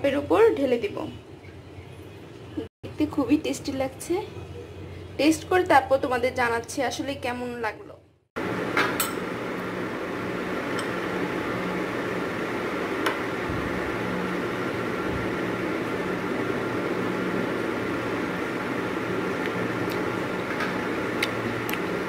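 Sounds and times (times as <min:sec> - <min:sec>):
machine hum: 0:08.4 - 0:22.0.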